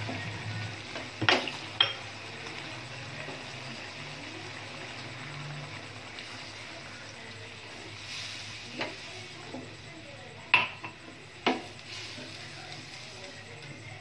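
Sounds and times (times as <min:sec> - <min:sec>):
simmering pan hiss: 0:00.0 - 0:14.0
utensil clinking on steel pan: 0:01.2 - 0:02.0.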